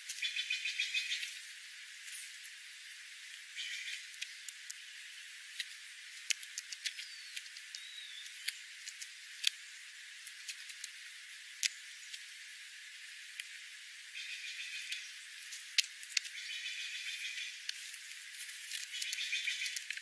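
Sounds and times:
steady hiss: 0:00.0 - 0:20.0
faint high bird chirps: 0:00.2 - 0:01.4, 0:03.5 - 0:04.5, 0:06.8 - 0:08.7, 0:14.1 - 0:15.3, 0:16.2 - 0:17.7, 0:18.9 - 0:19.9
birds pecking on gravel: 0:03.2 - 0:12.4, 0:14.2 - 0:20.0.

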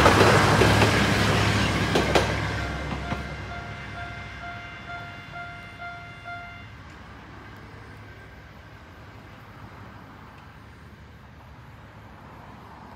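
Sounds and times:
level-crossing warning bell: 0:01.4 - 0:07.0.

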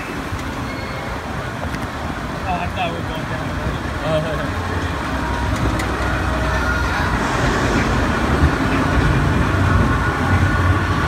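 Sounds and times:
conveyor rumbling and clattering: 0:00.0 - 0:11.0.

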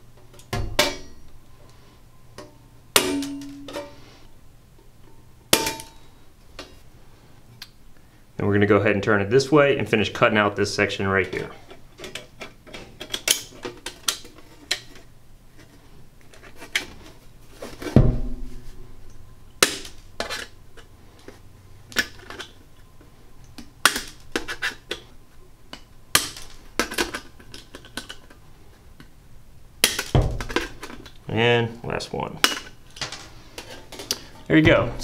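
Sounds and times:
nibbler snapping through sheet metal: 0:02.4 - 0:03.8, 0:19.6 - 0:20.0, 0:23.8 - 0:25.0, 0:25.7 - 0:28.2
heavy thud with low rumble: 0:18.0 - 0:18.7.

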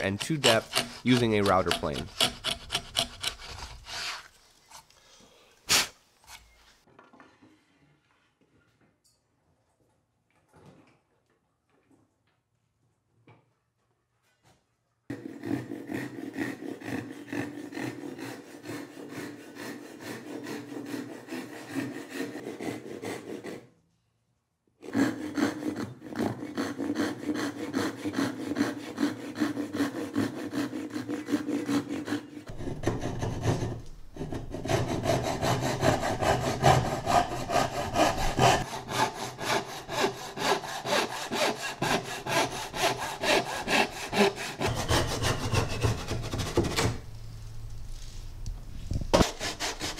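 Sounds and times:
hand saw cutting wood: 0:00.0 - 0:05.0, 0:15.1 - 0:23.7, 0:24.8 - 0:47.1, 0:49.1 - 0:49.9.

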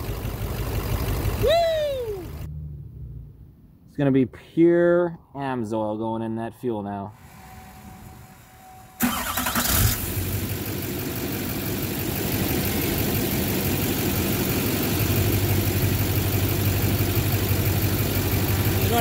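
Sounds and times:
diesel engine idling: 0:00.0 - 0:02.5, 0:09.0 - 0:19.0
starter cranking engine: 0:09.0 - 0:10.4.

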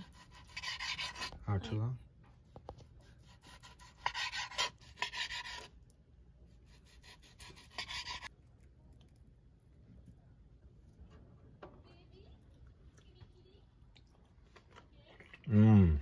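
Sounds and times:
knife sawing through steak: 0:00.0 - 0:01.4, 0:03.2 - 0:05.7, 0:06.7 - 0:08.3.

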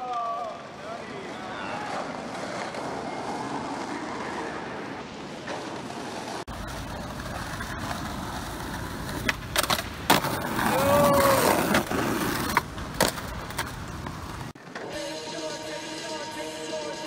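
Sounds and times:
skateboard wheels rolling: 0:00.0 - 0:17.0
skateboard clacks: 0:01.3 - 0:14.9
person yelling: 0:10.6 - 0:11.7.

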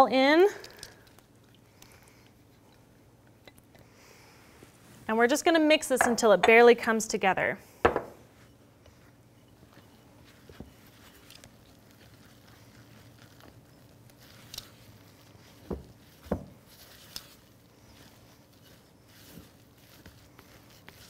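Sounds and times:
spatula stirring dough: 0:08.9 - 0:21.0.

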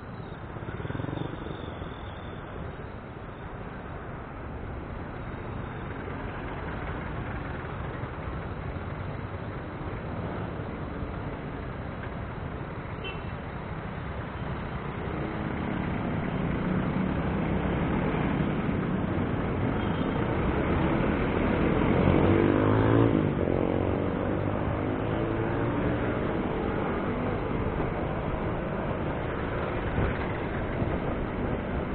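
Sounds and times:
road traffic engines: 0:00.0 - 0:31.9
engine revving: 0:20.5 - 0:27.7.

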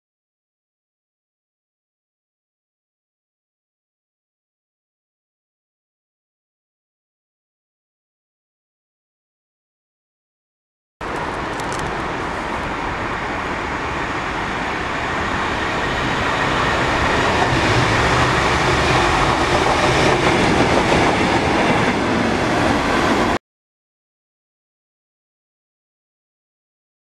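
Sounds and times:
diesel locomotives passing: 0:11.0 - 0:23.4.

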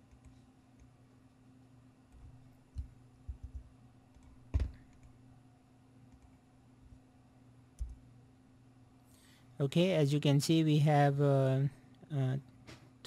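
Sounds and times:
faint low hum: 0:00.0 - 0:13.0
computer mouse and keyboard clicks: 0:02.1 - 0:05.2, 0:07.8 - 0:08.0.

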